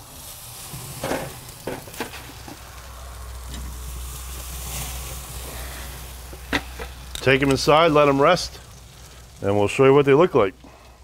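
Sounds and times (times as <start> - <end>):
steaks sizzling on grill: 0.0 - 11.0
low rumble: 2.3 - 9.0.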